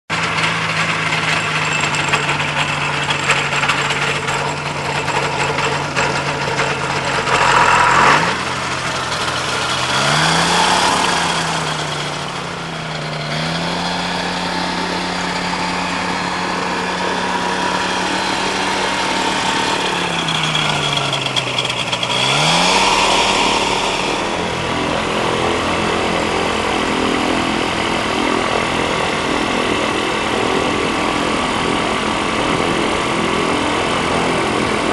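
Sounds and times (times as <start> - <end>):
light aircraft engine revving: 0.1 - 34.9.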